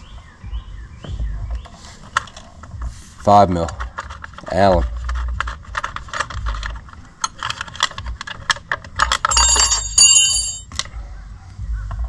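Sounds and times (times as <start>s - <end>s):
allen key and bolts clinking: 3.7s - 10.9s
metal ringing: 9.2s - 10.8s.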